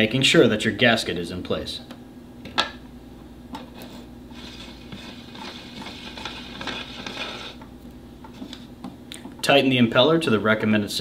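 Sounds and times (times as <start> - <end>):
metal scraping rub: 3.6 - 7.7.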